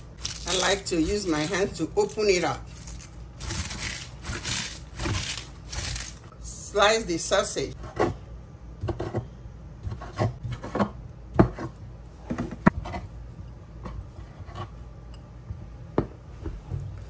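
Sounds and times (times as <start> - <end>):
knife scraping: 0.0 - 6.3, 9.8 - 11.8, 14.1 - 14.8.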